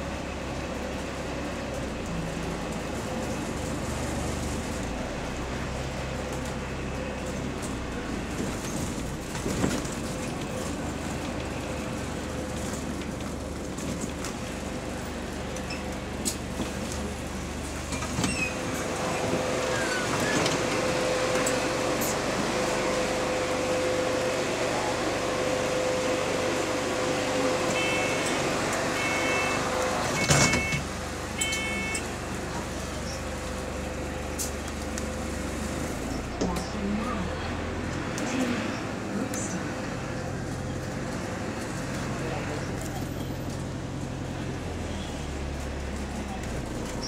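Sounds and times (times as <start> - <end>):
bus engine humming: 0.0 - 47.0
bus doors shutting: 15.5 - 24.0, 26.1 - 36.9
door warning beeps: 30.2 - 30.8, 31.4 - 32.0.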